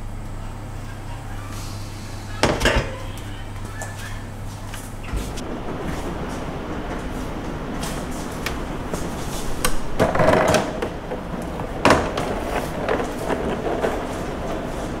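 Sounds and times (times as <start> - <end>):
steady low background noise: 0.0 - 15.0
plastic containers clattering: 8.4 - 15.0.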